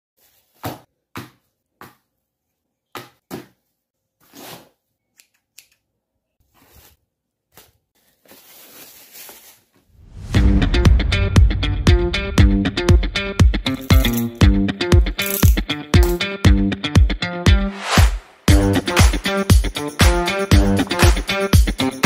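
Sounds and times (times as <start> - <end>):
paper rustling: 6.4 - 9.8
upbeat funk music: 10.2 - 22.0.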